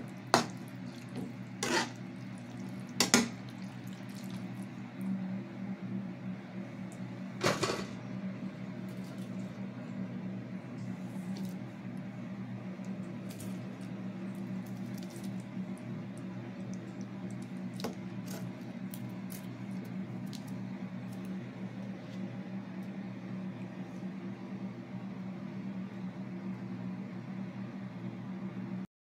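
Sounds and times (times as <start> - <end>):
sauce simmering in a pan: 0.1 - 5.3.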